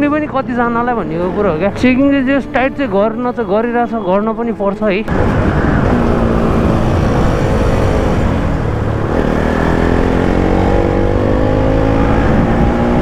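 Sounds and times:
motorcycle engine: 5.1 - 13.0
wind rushing over microphone: 5.1 - 13.0.

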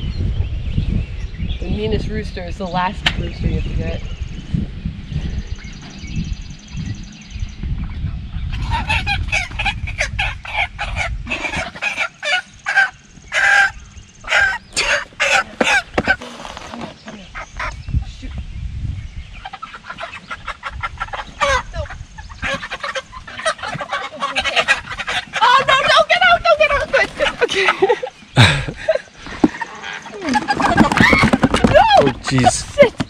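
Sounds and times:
chickens squawking and clucking: 7.8 - 18.4, 19.2 - 33.0.

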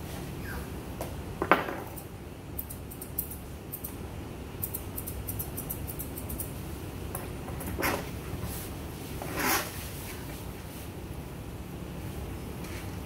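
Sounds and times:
scissors snipping fur: 2.0 - 4.0, 4.6 - 6.6.

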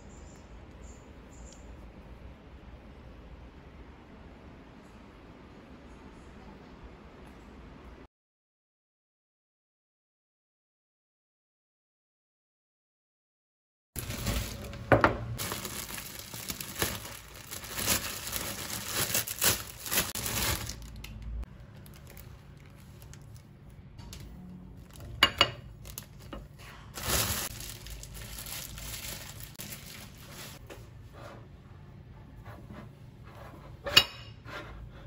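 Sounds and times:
plastic bag crinkling: 14.0 - 23.6, 24.8 - 30.6.

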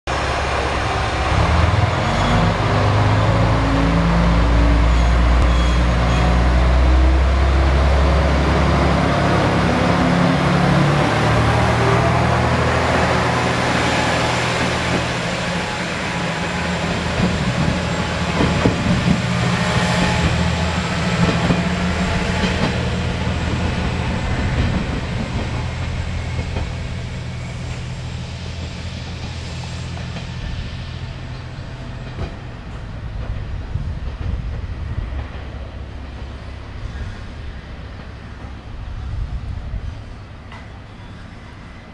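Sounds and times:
diesel engine revving: 0.1 - 24.0.

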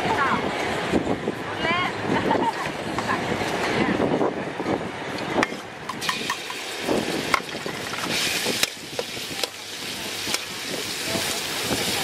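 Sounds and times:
oil sizzling: 5.9 - 12.0.

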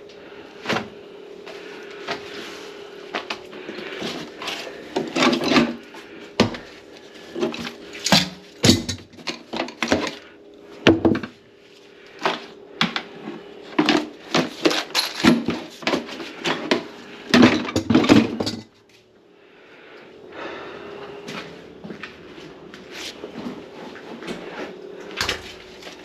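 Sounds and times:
faint steady hum: 0.0 - 26.0
hard objects clattering: 13.7 - 18.8.

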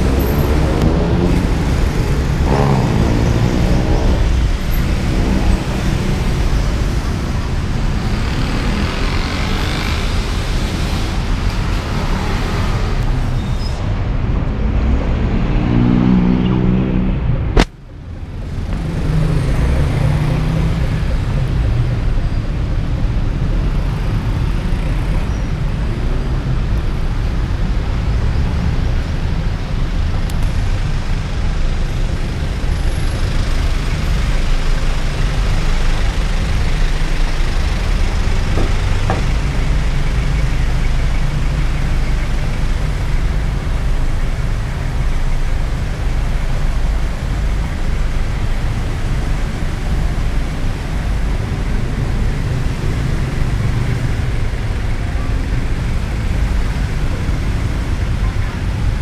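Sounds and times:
engine passing close by: 0.0 - 7.2, 14.8 - 17.3
street traffic rumble: 0.0 - 59.0.

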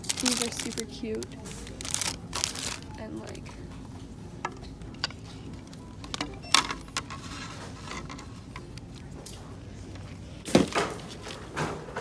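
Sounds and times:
plastic packaging crinkling: 0.0 - 3.1.

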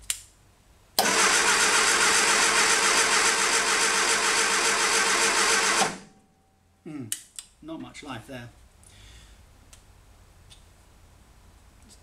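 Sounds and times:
starter motor cranking engine: 1.0 - 6.1.

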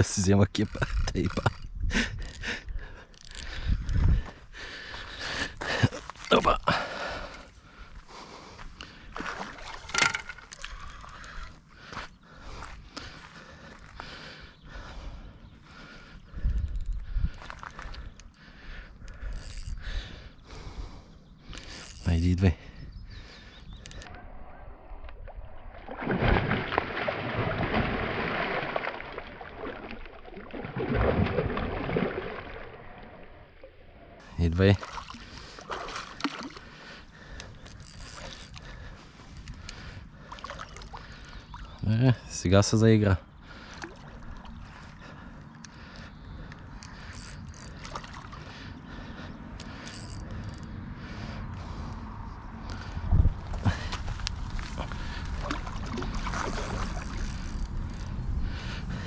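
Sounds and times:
fish thrashing and splashing: 9.2 - 11.2, 25.8 - 33.4, 34.8 - 36.9, 53.5 - 57.8
fishing reel clicks: 19.1 - 19.8, 21.5 - 22.2, 56.8 - 58.2
steady low rumble: 47.7 - 59.0.

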